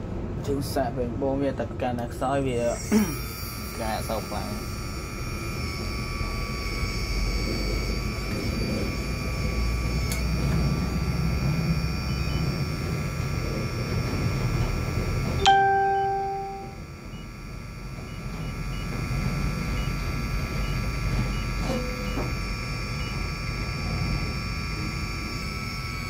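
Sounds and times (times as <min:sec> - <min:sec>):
hydraulic pump rumble and whine: 0:00.0 - 0:26.0
ringing chime tone: 0:15.2 - 0:17.4.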